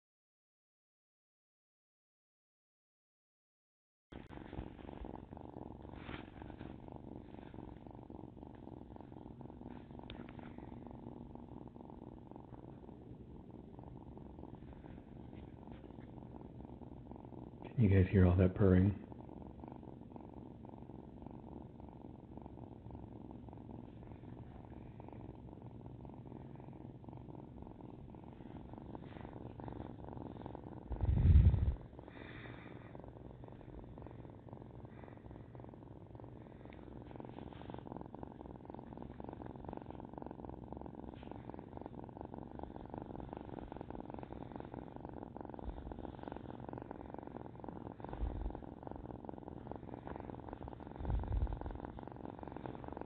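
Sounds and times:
kitten purring: 4.1s - 53.0s
loud low rumble: 30.9s - 31.8s.

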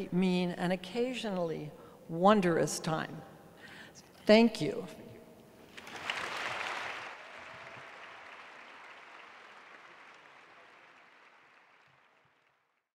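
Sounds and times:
audience applauding: 5.6s - 12.8s.

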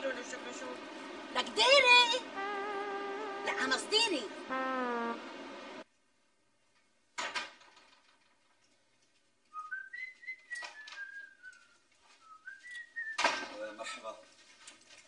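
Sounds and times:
person whistling a tune: 9.6s - 13.2s.

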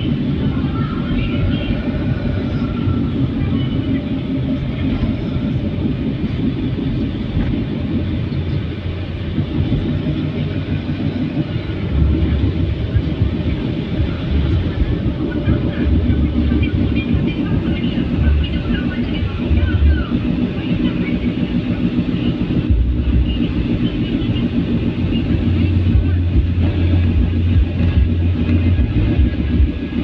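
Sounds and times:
car engine and tyres rumbling: 0.0s - 30.0s.

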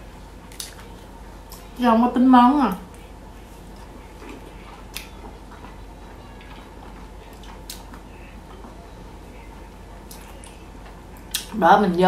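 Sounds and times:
quiet chewing: 2.8s - 11.6s.

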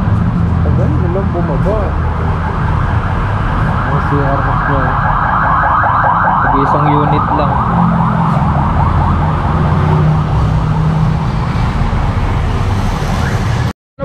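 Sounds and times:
siren yelping: 1.8s - 12.0s.

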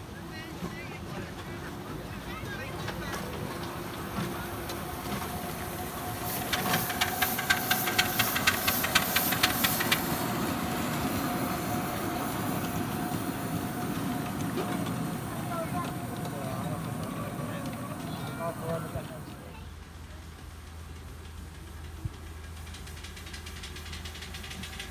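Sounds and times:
train wheels rumbling on track: 0.0s - 24.9s
steam hiss: 2.8s - 19.5s
steam locomotive exhaust chuffs: 2.8s - 24.9s.

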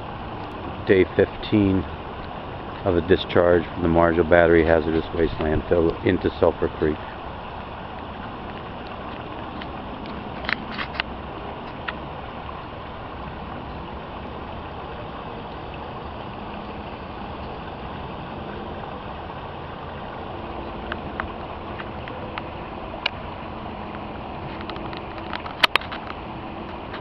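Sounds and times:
water rushing down rocky channel: 0.0s - 27.0s.

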